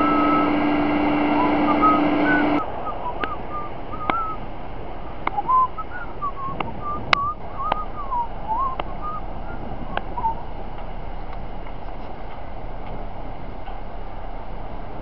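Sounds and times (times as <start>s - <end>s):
person whistling a tune: 0.0s - 0.6s, 1.3s - 4.4s, 5.3s - 10.4s.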